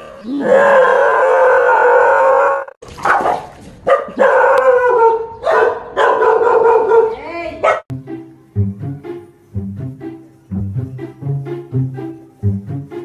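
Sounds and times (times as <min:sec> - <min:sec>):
dog howling: 0:00.0 - 0:02.8
dog barking: 0:03.0 - 0:07.9.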